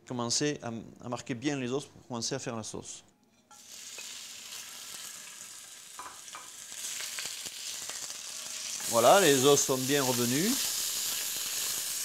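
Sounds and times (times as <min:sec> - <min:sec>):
bones sizzling in oil: 0:03.5 - 0:12.0.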